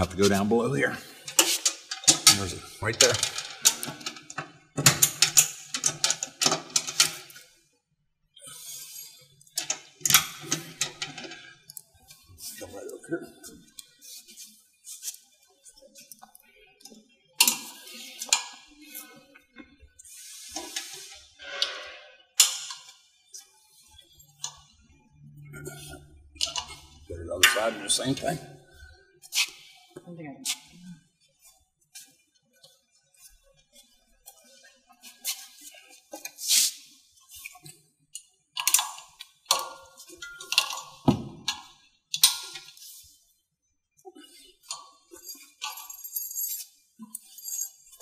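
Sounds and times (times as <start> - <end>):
rustling and scraping: 0.0 - 7.4, 20.1 - 22.2
metallic rattles and clinks: 1.3 - 7.3, 38.6 - 41.6, 44.7 - 48.0
metal parts clicking and knocking: 1.3 - 7.4, 9.4 - 11.8, 26.4 - 26.8, 38.6 - 42.8, 44.6 - 48.0.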